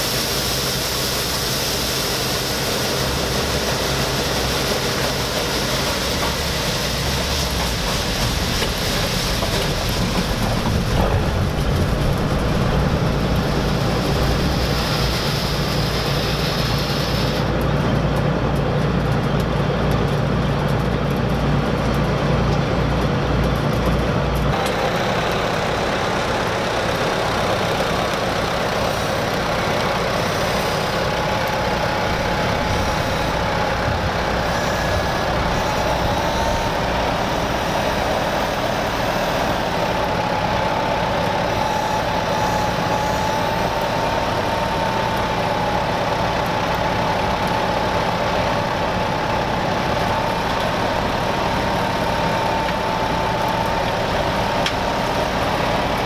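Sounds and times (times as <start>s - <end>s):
combine harvester running: 0.0s - 56.0s
tractor engine running: 0.0s - 56.0s
steady wavering whine: 27.7s - 56.0s.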